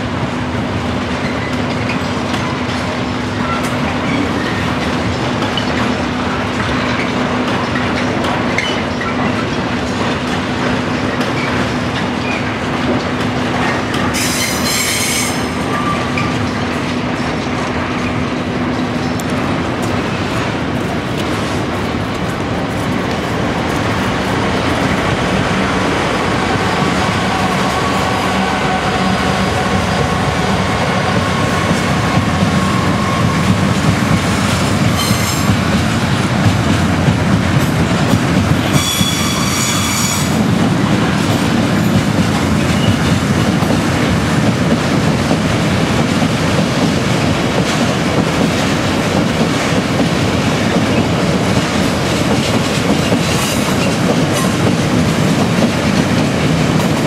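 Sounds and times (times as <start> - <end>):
diesel locomotive engine: 0.0 - 57.0
high wheel squeals: 14.2 - 16.2, 38.7 - 40.4
freight wagons rumbling and clattering: 40.3 - 46.2.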